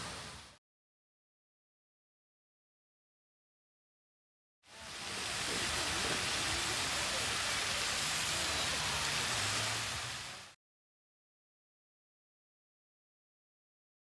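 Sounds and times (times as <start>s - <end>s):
fountain spray falling on water: 0.0s - 0.6s, 4.7s - 10.6s.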